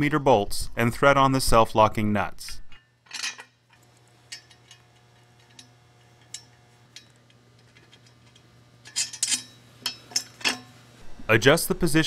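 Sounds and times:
low steady hum: 0:00.0 - 0:12.0
metal bolts clicking on steel tubes: 0:02.7 - 0:10.8.

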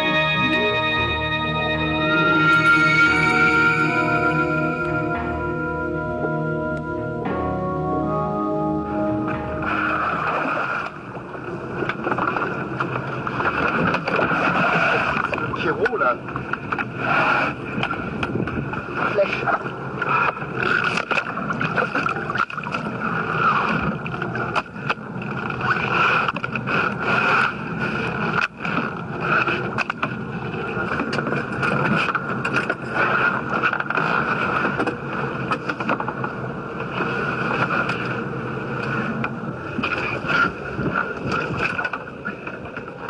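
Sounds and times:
wind on microphone: 0:16.6 - 0:19.2, 0:36.2 - 0:42.9.

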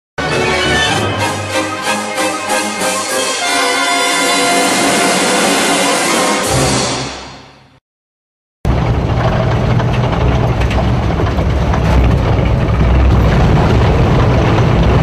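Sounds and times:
theme music: 0:00.2 - 0:07.8
low mechanical rumble: 0:08.7 - 0:15.0.

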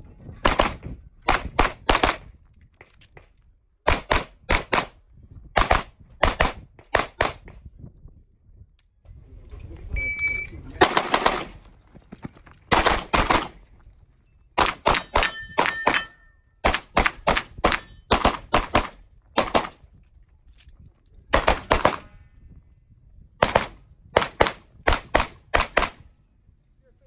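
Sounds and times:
pistol shots: 0:03.8 - 0:05.0, 0:12.7 - 0:13.6, 0:14.6 - 0:19.8, 0:21.3 - 0:22.1, 0:23.4 - 0:26.0.

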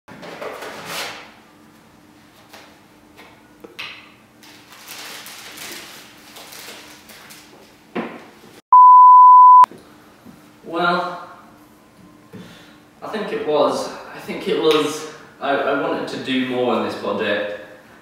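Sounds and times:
plastic bag rustling: 0:04.4 - 0:07.6
censor bleep: 0:08.7 - 0:09.7.

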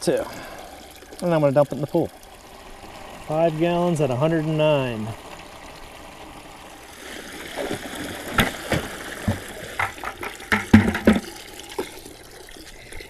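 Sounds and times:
water running into a plastic bucket: 0:00.0 - 0:13.0
knocks and clunks: 0:08.3 - 0:11.3.

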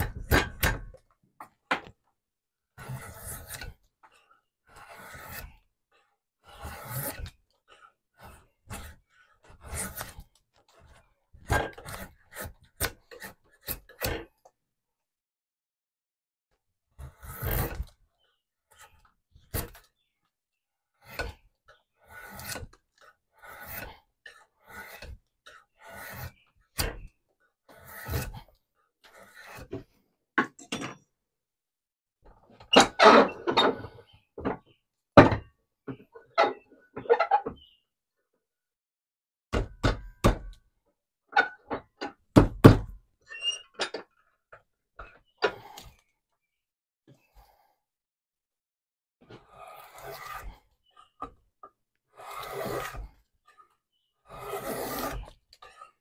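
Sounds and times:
hand tool shaving wood: 0:02.8 - 0:14.4, 0:17.0 - 0:18.0, 0:20.9 - 0:30.0, 0:49.2 - 0:56.0
tools clattering and scraping: 0:29.7 - 0:31.1
knocks on a wooden workbench: 0:42.4 - 0:42.9.

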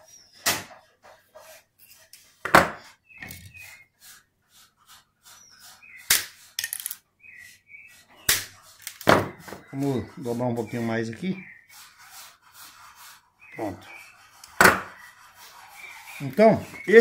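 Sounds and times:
pliers clicking and scraping wire: 0:06.1 - 0:07.0.

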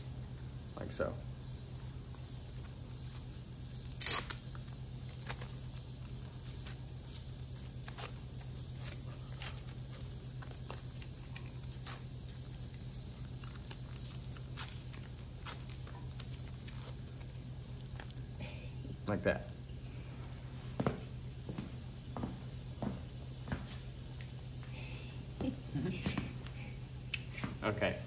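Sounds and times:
steady low hum: 0:00.0 - 0:28.0
velcro ripping: 0:02.6 - 0:12.5.

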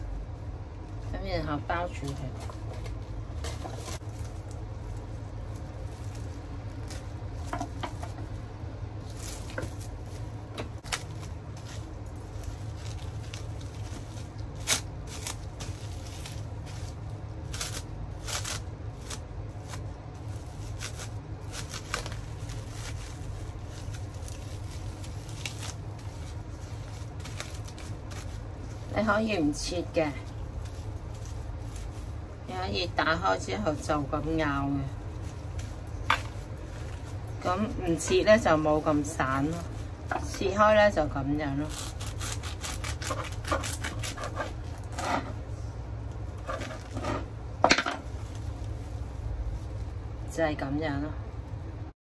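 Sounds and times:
cling film crinkling: 0:00.0 - 0:50.3
steady low hum: 0:00.0 - 0:52.0.

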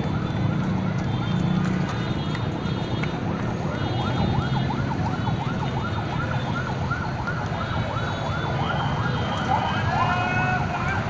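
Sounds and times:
police siren yelping: 0:00.0 - 0:01.1, 0:03.3 - 0:11.0
low rumble of cars: 0:00.0 - 0:11.0.

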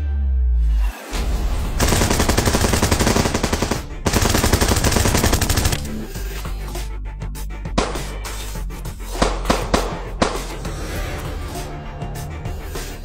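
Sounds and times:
automatic gunfire bursts: 0:01.8 - 0:06.0.

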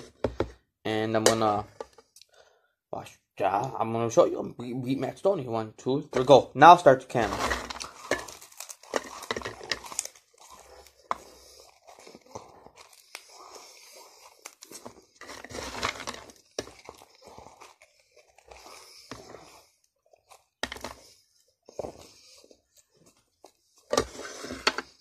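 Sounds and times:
person chewing french fries: 0:07.6 - 0:23.9.

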